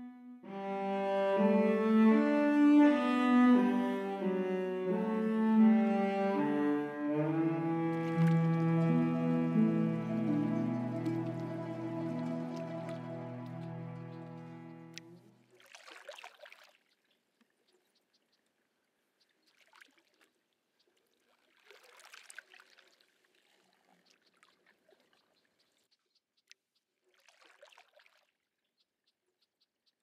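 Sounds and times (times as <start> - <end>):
paddle strokes in water: 6.0 - 25.9, 26.6 - 28.5
water dripping: 7.9 - 9.5.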